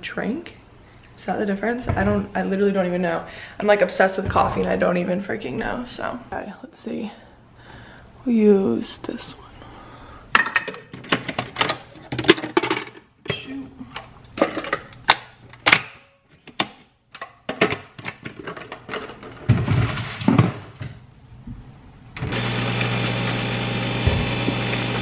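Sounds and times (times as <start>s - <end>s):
coffee machine whirring hum: 22.2s - 25.0s.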